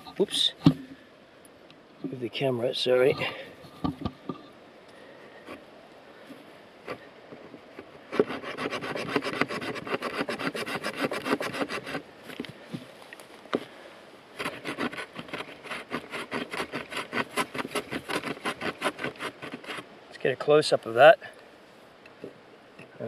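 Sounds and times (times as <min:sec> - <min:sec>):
saw rasping through branch: 0:08.1 - 0:12.0, 0:14.4 - 0:19.9.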